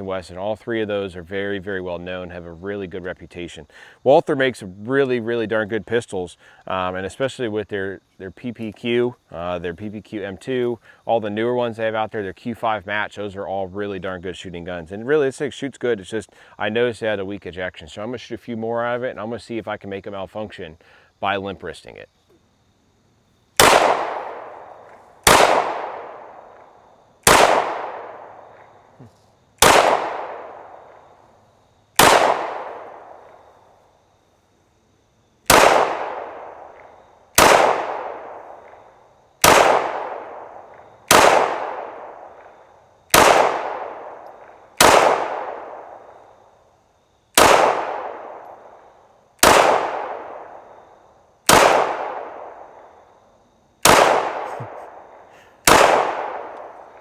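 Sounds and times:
pistol shots echoing: 23.6 - 28.7, 29.6 - 31.1, 32.0 - 33.5, 35.5 - 46.2, 47.4 - 52.9, 53.8 - 57.0.

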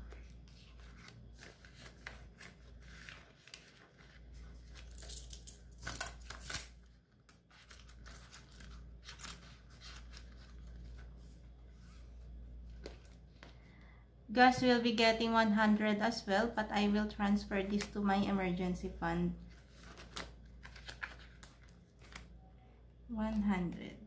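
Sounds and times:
banknotes rustling and flicking: 0.0 - 13.5, 19.5 - 22.4.

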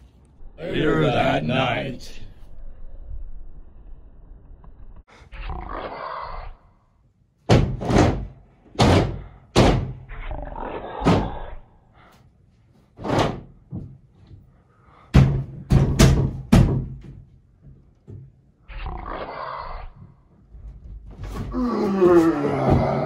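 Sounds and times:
heavy bangs on door: 7.5 - 10.1, 13.0 - 13.6, 15.1 - 17.2.

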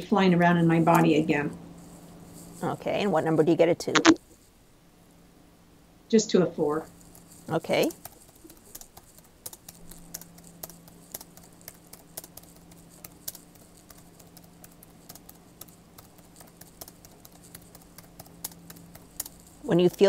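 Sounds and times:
low steady hum: 0.0 - 20.0
keyboard keys typing: 4.0 - 4.2, 7.6 - 20.0.

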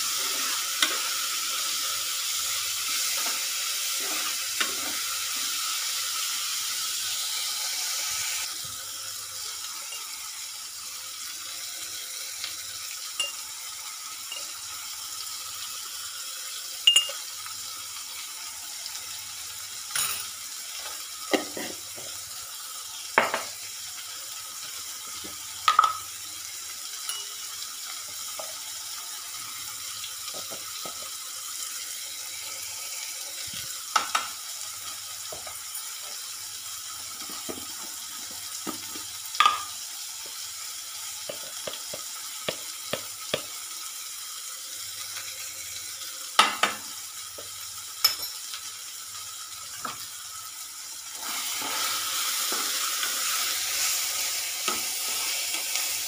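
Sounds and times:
onions and tomatoes sizzling: 0.0 - 56.0.

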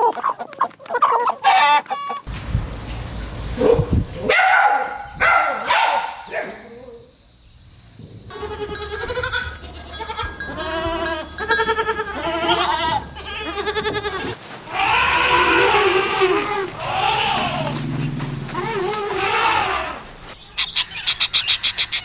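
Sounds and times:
goats bleating: 8.3 - 20.1.

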